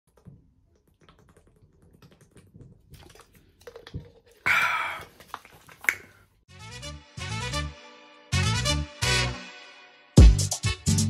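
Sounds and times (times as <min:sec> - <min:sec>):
swallowing and bottle clicks: 0:00.1 - 0:06.2
loud breathy exhale: 0:04.5 - 0:05.1.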